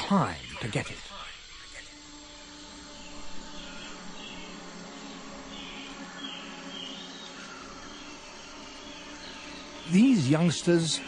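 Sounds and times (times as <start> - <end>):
birds or insects chirping: 0.0 - 11.0
faint steady hum: 0.0 - 11.0.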